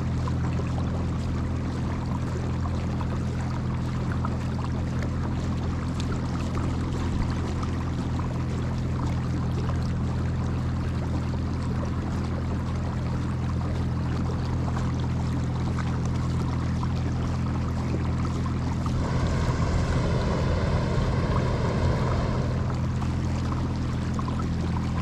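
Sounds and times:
water washing along hull: 0:00.0 - 0:25.0
loud rushing noise: 0:18.8 - 0:23.4.

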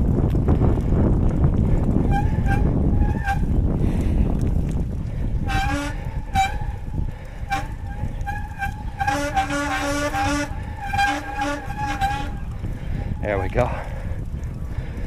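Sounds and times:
bicycle disc brake squealing: 0:02.0 - 0:03.6, 0:05.5 - 0:12.7.

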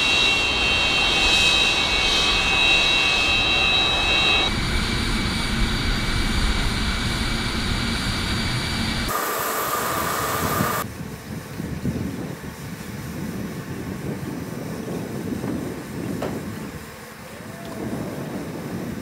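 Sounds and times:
jet engines roaring: 0:00.0 - 0:11.2.

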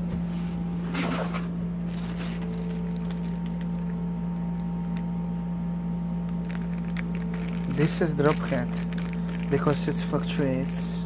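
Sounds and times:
steady low hum: 0:00.0 - 0:11.0
plastic bag crinkling: 0:01.8 - 0:05.1, 0:06.3 - 0:10.8.

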